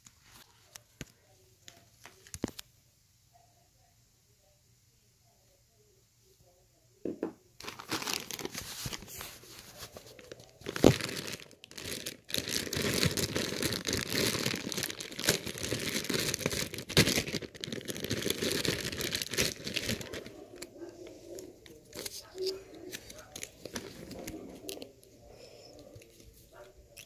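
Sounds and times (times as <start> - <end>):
plastic bag crinkling: 7.6 - 27.0.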